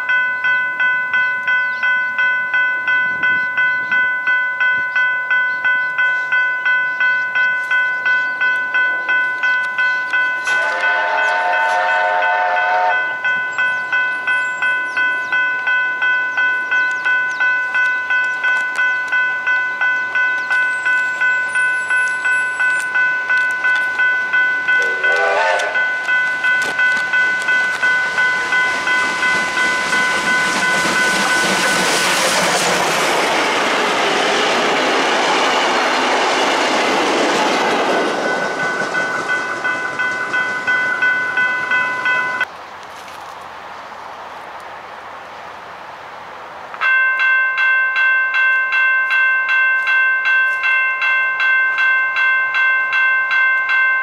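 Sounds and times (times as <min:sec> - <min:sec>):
level crossing bell ringing: 0:00.0 - 0:32.0, 0:38.2 - 0:42.5, 0:46.8 - 0:54.0
approaching train: 0:00.0 - 0:54.0
steam locomotive whistle: 0:10.4 - 0:13.2, 0:24.8 - 0:26.1.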